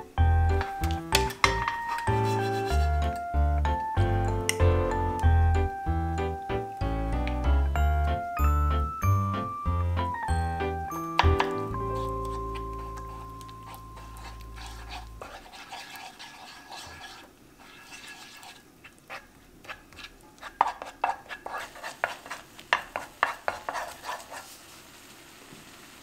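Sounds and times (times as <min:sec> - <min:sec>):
spoon tapping against pan: 0:00.5 - 0:02.1, 0:11.0 - 0:14.4, 0:22.0 - 0:23.8
wooden spoon scraping a pan: 0:00.6 - 0:03.3, 0:11.2 - 0:24.8.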